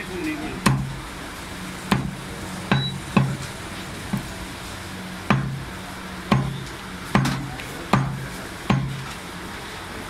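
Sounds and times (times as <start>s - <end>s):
cleaver chopping on wooden block: 0.6s - 0.9s, 1.9s - 3.4s, 5.3s - 5.6s, 6.3s - 9.0s.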